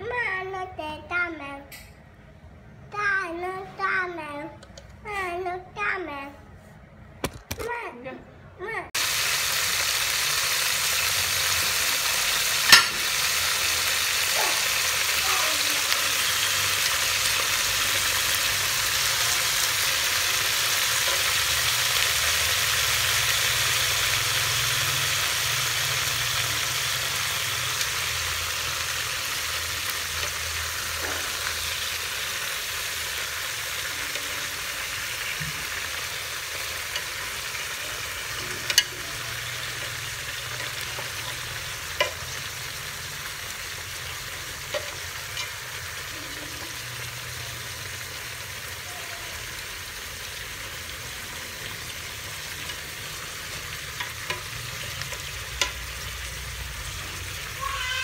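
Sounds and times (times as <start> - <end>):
sharp clicks and taps: 4.6 - 5.0
chicken sizzling in a metal pot: 9.0 - 58.0.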